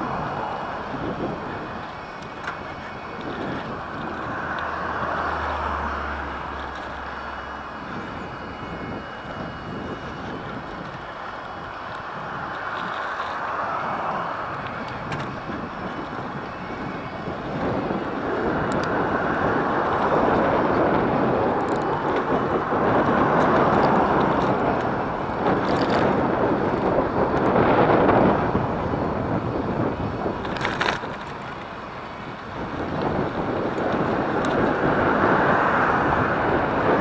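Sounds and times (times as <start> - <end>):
tyre noise on asphalt: 0.0 - 37.0
wind buffeting microphone: 0.0 - 37.0.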